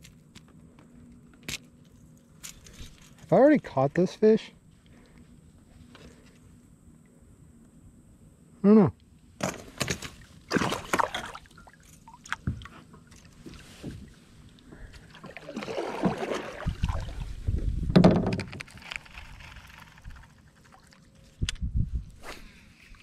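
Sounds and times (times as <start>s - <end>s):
water splashing: 10.4s - 13.7s, 15.0s - 17.4s.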